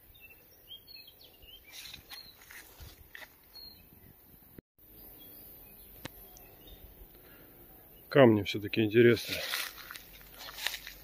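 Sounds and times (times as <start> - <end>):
small birds chirping faintly: 0.0 - 11.0
soft rustles: 1.7 - 3.6, 9.2 - 11.0.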